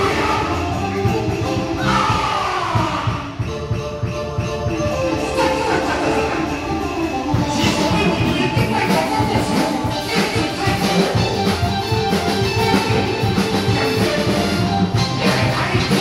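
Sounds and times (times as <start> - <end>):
percussion crashes: 0.0 - 16.0
sustained melody: 3.4 - 15.7.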